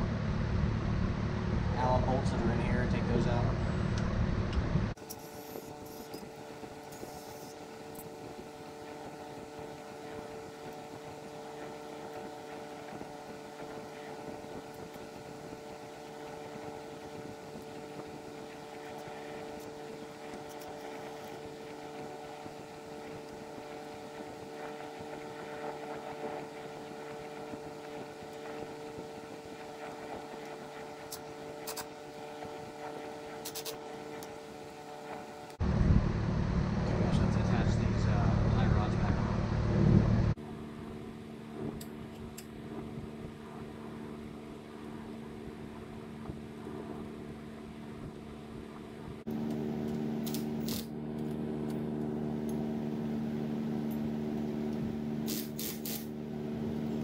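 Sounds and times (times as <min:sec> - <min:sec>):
steady mechanical hum: 0:00.0 - 0:57.0.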